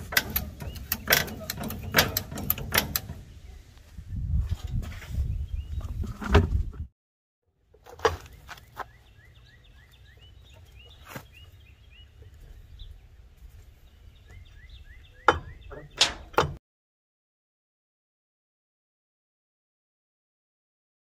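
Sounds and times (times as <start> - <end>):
lug wrench clinking on lug nuts: 0.0 - 3.2.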